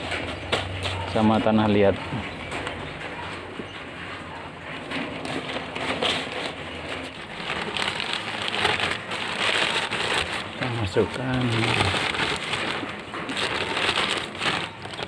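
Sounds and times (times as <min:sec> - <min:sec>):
plastic bag rustling: 0:00.0 - 0:15.0
soil pouring into plastic bag: 0:07.2 - 0:15.0.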